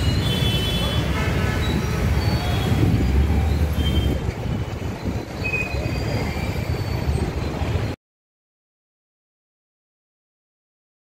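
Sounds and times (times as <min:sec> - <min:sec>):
dense road traffic engines: 0:00.0 - 0:08.0.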